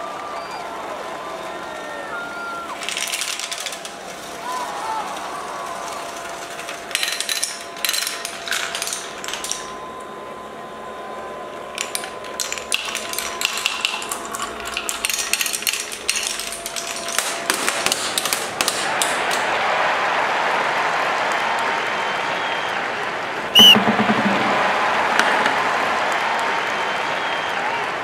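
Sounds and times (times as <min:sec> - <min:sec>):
marbles clattering down a run: 0:02.8 - 0:04.0, 0:06.0 - 0:09.7, 0:11.8 - 0:19.1.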